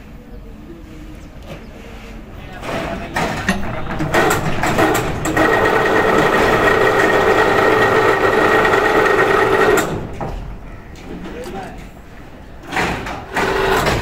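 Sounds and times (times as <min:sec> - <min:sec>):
machine clicks: 0:03.2 - 0:10.2.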